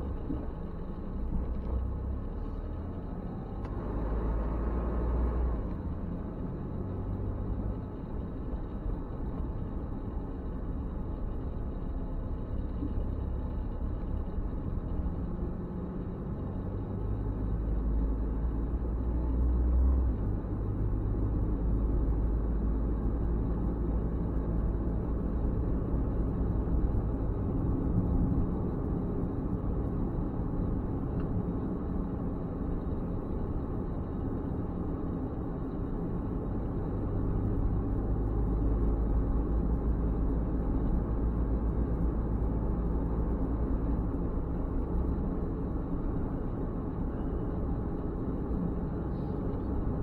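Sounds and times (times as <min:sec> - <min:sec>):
car tyre and engine rumble: 0:00.0 - 0:50.0.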